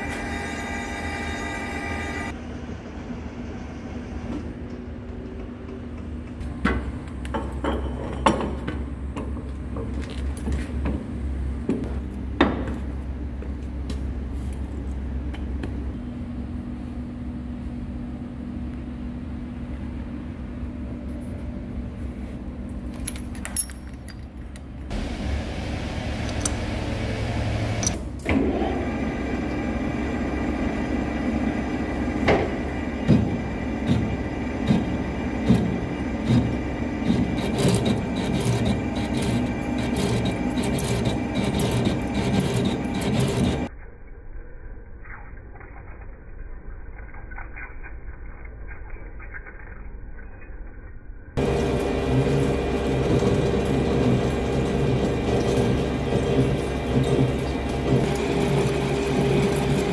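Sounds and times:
metal lathe humming: 0.0s - 2.4s, 24.9s - 43.7s, 51.4s - 59.9s.

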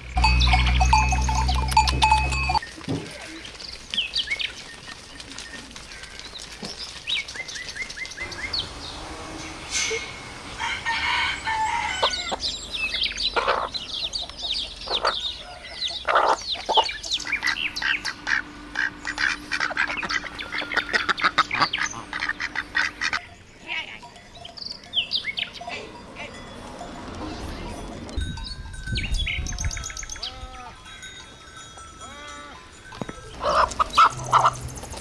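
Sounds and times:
chickens clucking: 0.0s - 4.0s, 4.7s - 23.4s, 32.9s - 35.0s
chicks chirping: 6.7s - 10.4s, 11.2s - 23.3s, 33.3s - 35.0s.

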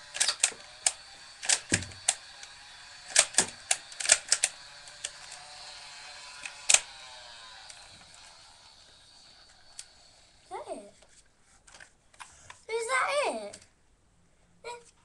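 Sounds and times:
toy blaster plastic clicks and snaps: 0.0s - 10.0s.

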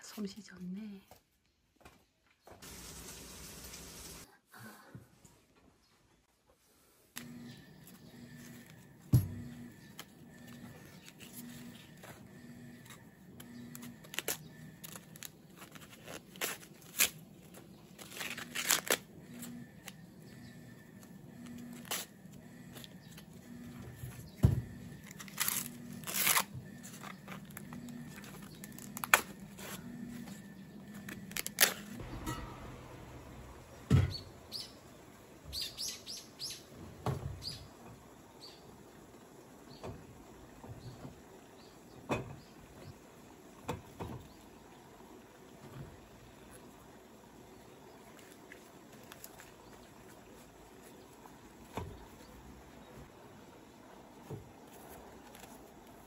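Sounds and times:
corn husks tearing and rustling: 9.8s - 12.2s, 12.8s - 20.0s, 20.9s - 23.4s, 24.9s - 32.2s, 47.9s - 52.2s, 54.6s - 56.0s.

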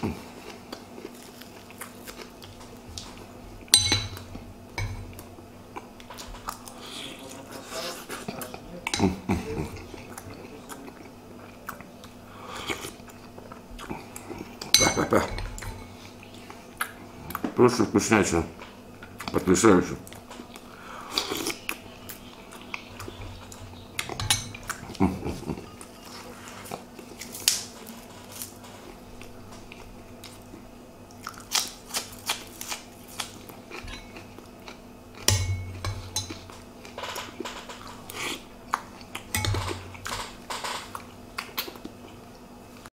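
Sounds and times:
man chewing: 0.0s - 17.5s, 18.9s - 42.9s
spoon clinking on ceramic bowl: 3.8s - 4.2s.

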